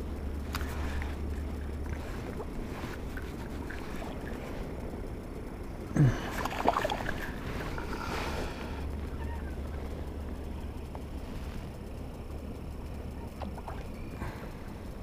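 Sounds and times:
low background rumble: 0.0 - 15.0
fish splashing in water: 0.4 - 5.0, 6.1 - 10.5.

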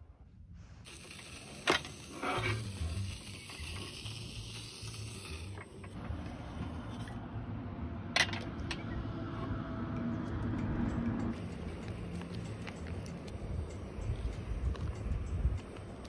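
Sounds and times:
gas stove hissing: 0.8 - 6.0, 11.4 - 16.0.

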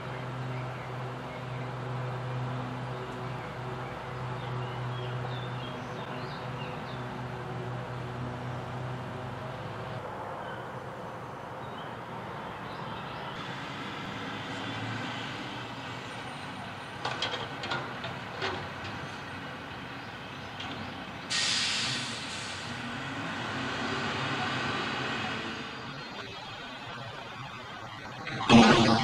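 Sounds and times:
air brakes hissing: 21.3 - 22.7.

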